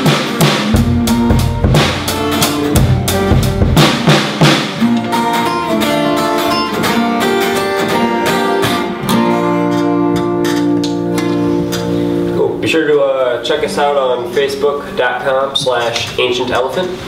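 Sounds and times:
sharp drum hits: 0.0 - 5.0
guitars strumming chords: 0.0 - 15.9.

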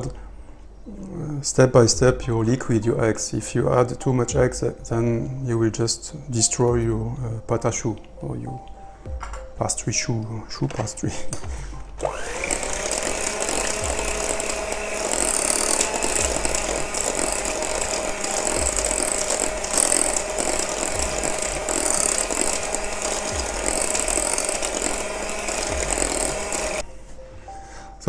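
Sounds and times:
electric hand mixer running: 12.0 - 26.8.

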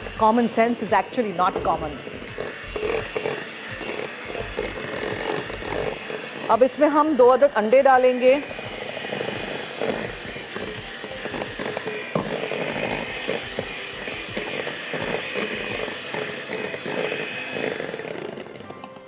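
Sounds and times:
electric hand mixer running: 0.0 - 19.0.

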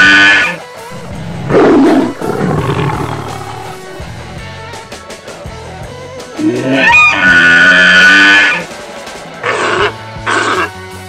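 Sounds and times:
elephant trumpeting: 0.0 - 5.0, 6.4 - 8.7, 9.4 - 10.8
rough animal call: 0.0 - 5.0, 6.4 - 8.7, 9.4 - 10.9
plucked guitar music: 0.9 - 7.3.

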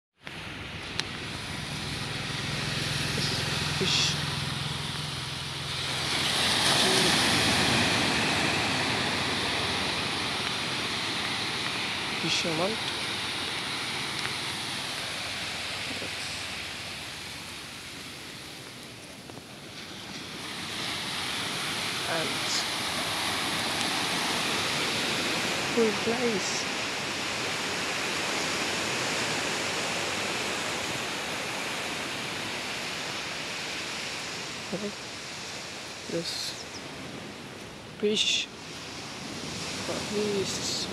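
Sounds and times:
surf washing up beach: 0.2 - 40.9
low hum: 0.3 - 10.5.

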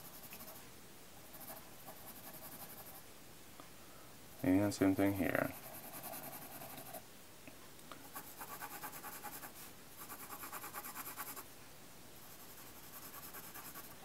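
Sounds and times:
pencil scratching on paper: 1.3 - 3.0, 5.5 - 7.0, 8.1 - 11.4, 12.2 - 14.0.

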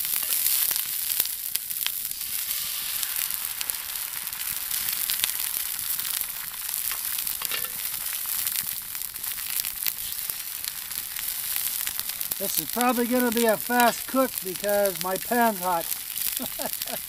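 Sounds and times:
eggs sizzling in a pan: 0.0 - 17.0
grease popping: 0.0 - 17.0.

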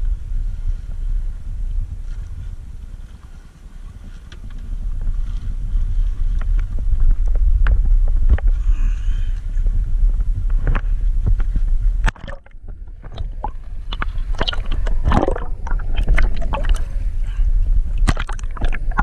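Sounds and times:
wind and water rumble: 0.0 - 19.0
muffled underwater gurgling: 4.7 - 19.0
clicking and splashing water: 10.6 - 17.0, 17.9 - 19.0.

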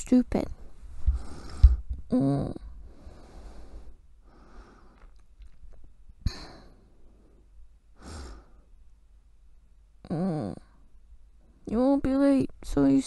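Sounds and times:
woman breathing softly and sighing: 6.2 - 8.7.

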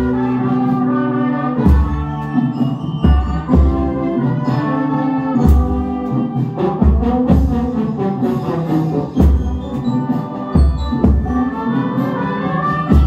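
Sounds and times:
brass band playing: 0.0 - 13.0.

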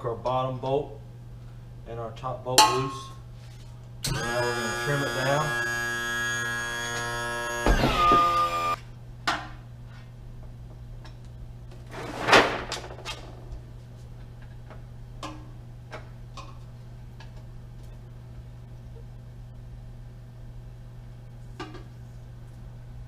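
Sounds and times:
trim motor whining: 4.0 - 8.8.

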